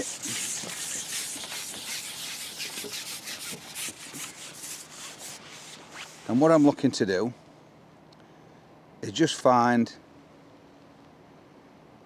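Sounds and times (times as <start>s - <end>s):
fishing pole sliding through hands: 0.0s - 6.8s.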